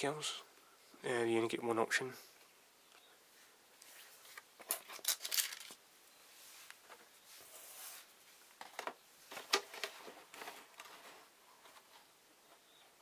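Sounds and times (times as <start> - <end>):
paper and cardboard rustling: 6.8 - 12.1.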